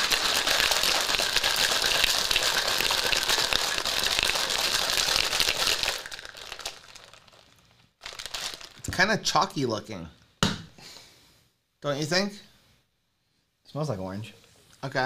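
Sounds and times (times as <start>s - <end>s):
shaker bottle sloshing rattle: 0.0s - 9.0s.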